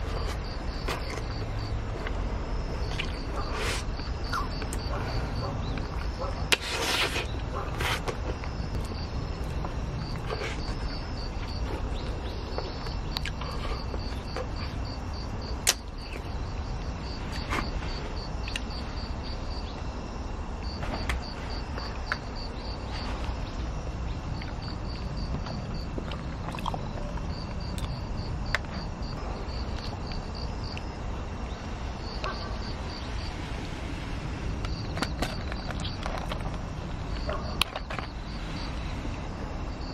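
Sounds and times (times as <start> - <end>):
insect chirping: 0.0 - 39.9
low outdoor rumble: 0.0 - 39.9.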